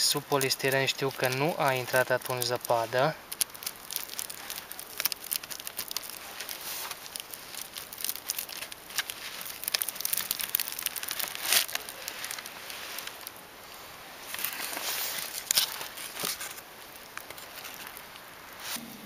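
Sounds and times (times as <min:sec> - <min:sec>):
plastic sheeting crinkling: 0:00.0 - 0:18.8
polystyrene board scraping and creaking: 0:00.1 - 0:13.3, 0:14.2 - 0:16.6.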